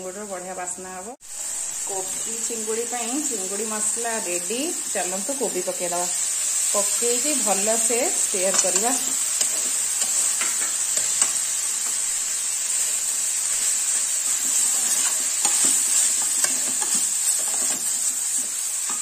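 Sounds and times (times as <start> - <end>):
food sizzling in a frying pan: 0.0 - 19.0
metal utensil scraping a pan: 8.2 - 19.0.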